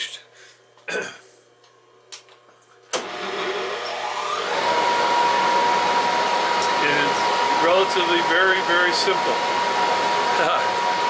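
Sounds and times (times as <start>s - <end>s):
lathe motor whining: 2.9s - 11.0s.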